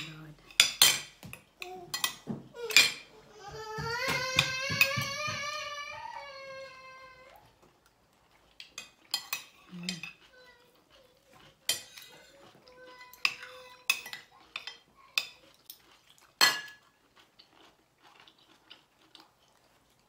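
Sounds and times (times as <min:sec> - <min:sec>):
cutlery clinking on a plate: 0:00.0 - 0:03.1, 0:08.6 - 0:10.3, 0:11.6 - 0:12.4, 0:13.0 - 0:15.8, 0:16.4 - 0:16.9.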